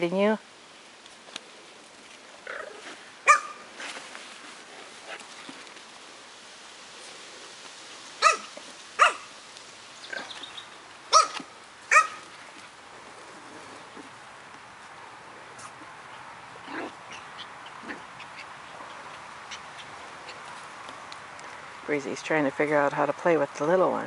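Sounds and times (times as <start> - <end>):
puppies yapping: 3.2 - 3.7, 8.2 - 9.3, 11.1 - 12.3.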